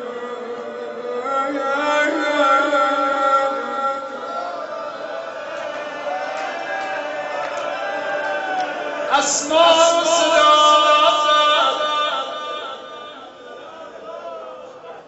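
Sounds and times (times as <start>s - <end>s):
man chanting in held notes: 9.1s - 14.6s.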